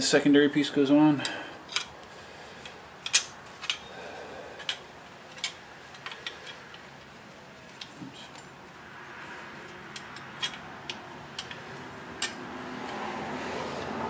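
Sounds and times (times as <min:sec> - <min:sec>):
light metal clicks and clinks: 0:02.6 - 0:03.9, 0:07.7 - 0:08.6, 0:09.6 - 0:13.0.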